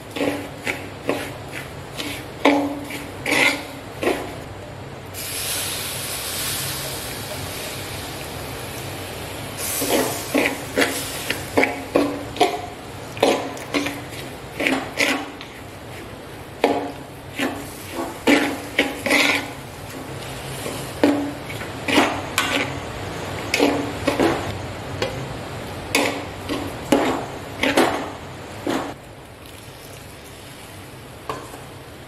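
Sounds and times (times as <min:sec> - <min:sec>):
metal spatula scraping pan: 0:00.1 - 0:04.2, 0:13.2 - 0:19.6, 0:20.4 - 0:22.8
water pouring into pan: 0:29.4 - 0:30.5.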